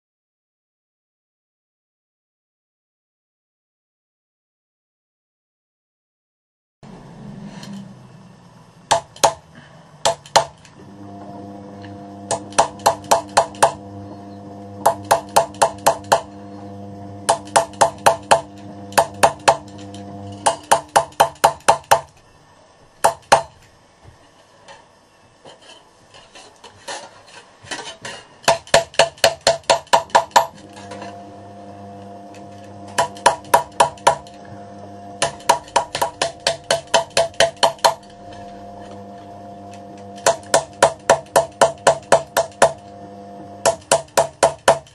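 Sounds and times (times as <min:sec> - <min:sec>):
hammer striking copper: 0:08.9 - 0:09.4, 0:10.0 - 0:10.6, 0:12.3 - 0:13.8, 0:14.8 - 0:16.3, 0:17.3 - 0:19.7, 0:20.3 - 0:22.1, 0:28.1 - 0:31.0, 0:32.9 - 0:34.3, 0:35.2 - 0:38.1, 0:40.2 - 0:42.8, 0:43.6 - 0:44.9.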